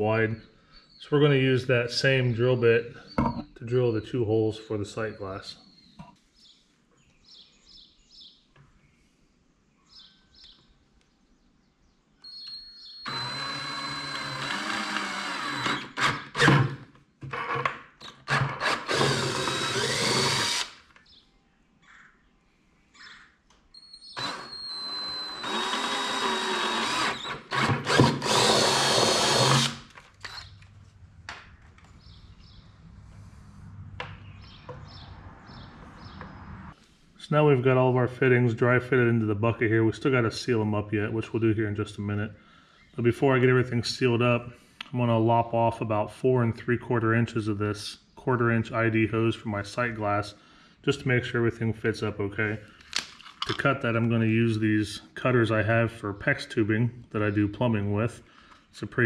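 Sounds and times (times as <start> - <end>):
cordless drill boring plastic: 12.4 - 16.8, 18.0 - 20.8, 24.0 - 30.6.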